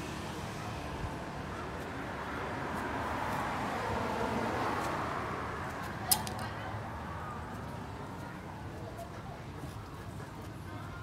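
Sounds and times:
distant road traffic: 0.0s - 11.0s.

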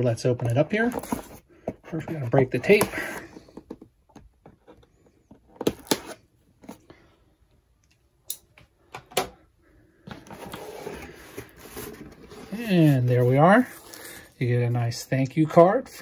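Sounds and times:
cardboard scraping rustle: 0.8s - 3.5s, 10.1s - 14.2s.

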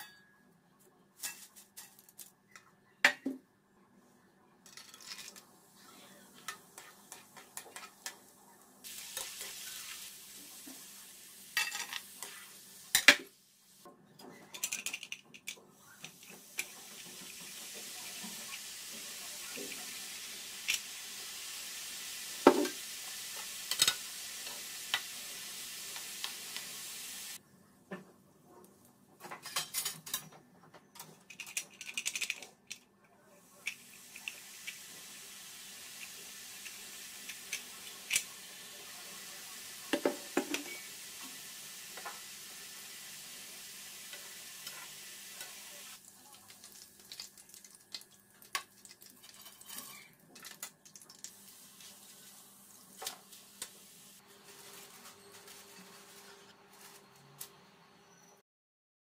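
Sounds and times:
oil sizzling in a frying pan: 6.3s - 13.9s, 15.7s - 27.4s, 33.5s - 57.0s.

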